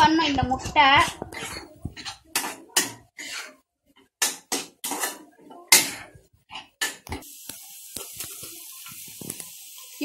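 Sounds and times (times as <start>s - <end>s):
ladle scraping a pan: 0.8s - 7.0s.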